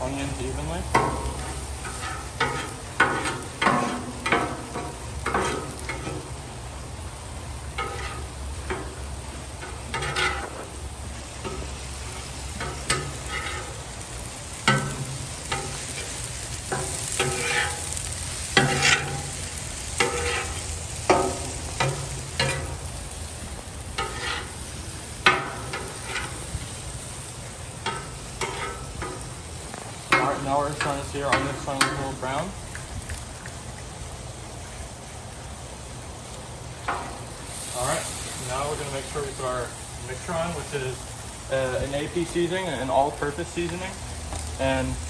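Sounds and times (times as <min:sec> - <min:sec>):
meat and onions sizzling on griddle: 0:00.0 - 0:45.0
metal spatulas scraping and clacking: 0:01.0 - 0:06.2, 0:07.8 - 0:08.9, 0:09.6 - 0:10.6, 0:12.6 - 0:13.8, 0:16.7 - 0:17.9, 0:18.6 - 0:19.2, 0:20.0 - 0:22.7, 0:24.0 - 0:24.5, 0:25.3 - 0:26.4, 0:27.9 - 0:29.2.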